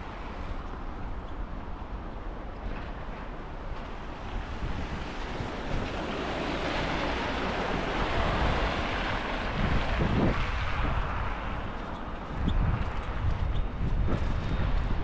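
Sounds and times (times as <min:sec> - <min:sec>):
street traffic rushing past: 0:03.8 - 0:15.0.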